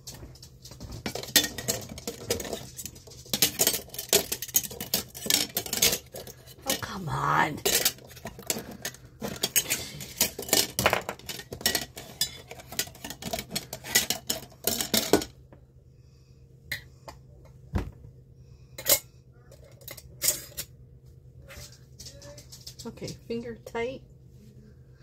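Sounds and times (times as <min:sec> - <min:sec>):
utensils and glass jars clinking: 0:00.7 - 0:15.4, 0:18.8 - 0:20.7.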